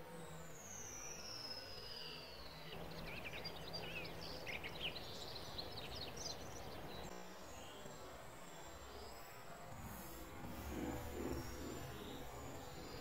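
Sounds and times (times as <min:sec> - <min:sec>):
outdoor background noise: 0:00.0 - 0:13.0
songbird chirping and trilling: 0:00.6 - 0:07.9.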